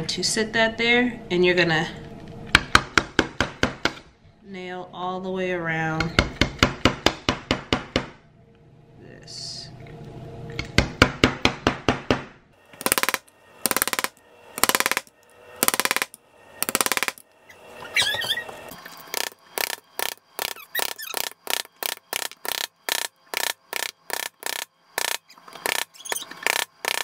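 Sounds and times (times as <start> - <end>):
hammer tapping nail through metal: 12.8 - 17.2.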